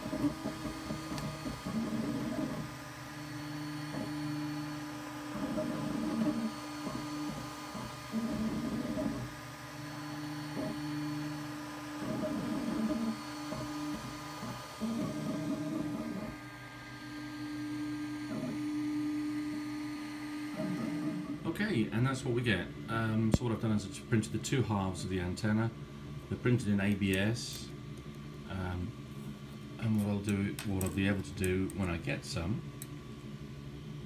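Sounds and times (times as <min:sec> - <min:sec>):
stepper motors whining: 0:00.0 - 0:21.5
cooling fans humming: 0:00.0 - 0:34.0.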